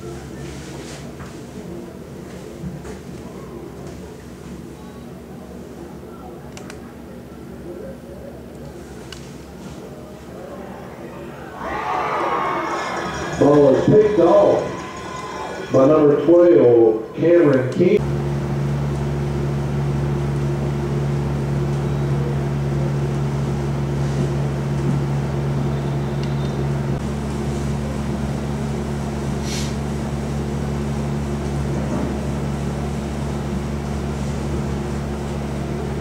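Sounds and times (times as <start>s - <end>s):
steady low hum: 0.0s - 36.0s
brief high hiss: 29.4s - 29.8s.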